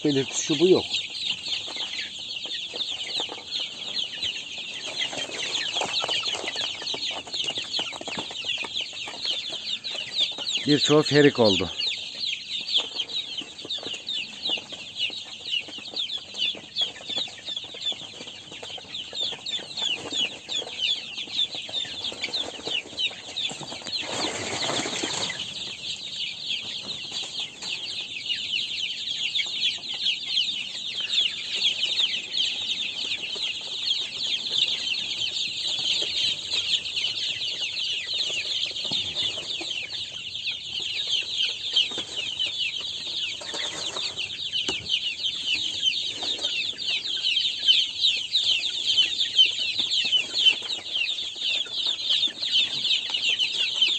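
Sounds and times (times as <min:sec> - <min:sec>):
chicks peeping: 0:00.0 - 0:53.9
rustling: 0:21.6 - 0:26.0.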